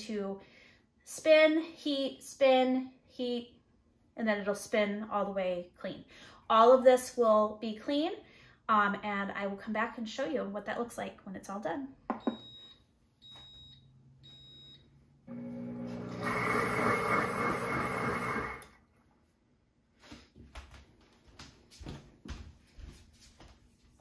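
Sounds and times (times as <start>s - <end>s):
short electronic beeps: 12.2s - 14.8s
blender motor whirring: 15.3s - 18.8s.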